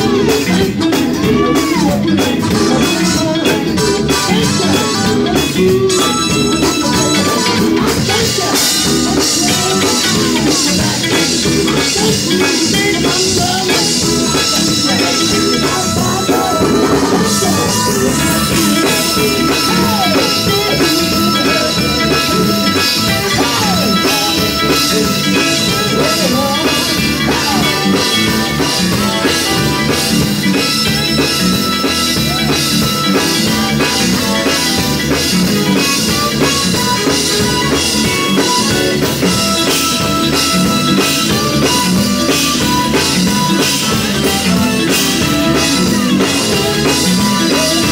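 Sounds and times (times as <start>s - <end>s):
male vocal group singing: 0.0s - 30.3s, 41.3s - 47.9s
drum kit groove: 0.0s - 47.9s
electric guitar: 0.0s - 47.9s.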